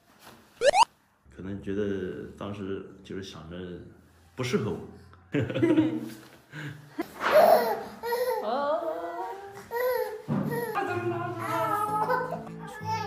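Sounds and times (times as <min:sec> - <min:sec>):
light background music: 0:09.8 - 0:13.0
baby babbling and laughing: 0:11.5 - 0:13.0.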